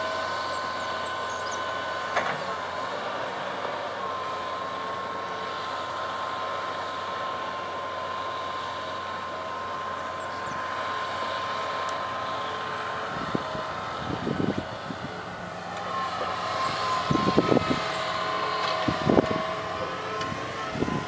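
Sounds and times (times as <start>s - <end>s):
excavator engine drone: 0.0s - 21.0s
high whine: 11.8s - 21.0s.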